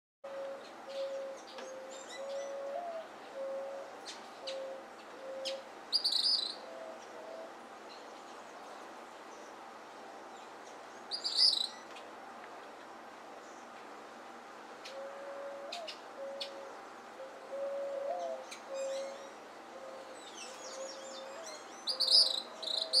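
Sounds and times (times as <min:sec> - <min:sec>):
bird high chattering calls: 0:00.9 - 0:07.4, 0:11.1 - 0:11.8, 0:17.5 - 0:23.0.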